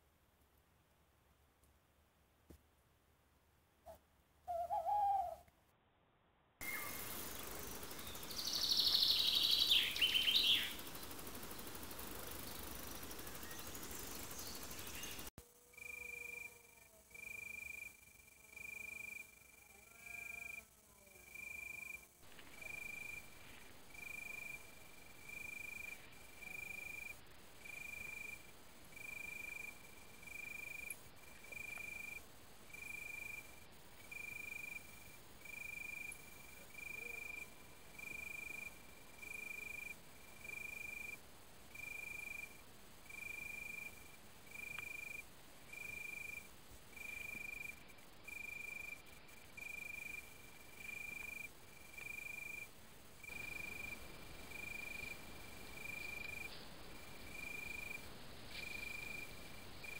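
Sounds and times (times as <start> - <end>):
insect chirping: 4.5 - 5.4, 6.6 - 59.9.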